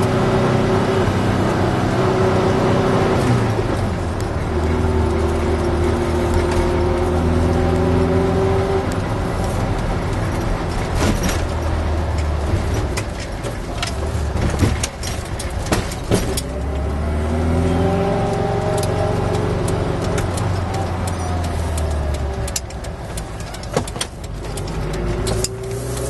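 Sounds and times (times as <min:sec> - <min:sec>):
van engine droning: 0:00.0 - 0:26.0
sharp knocks and rattles: 0:09.0 - 0:16.8, 0:18.6 - 0:25.7.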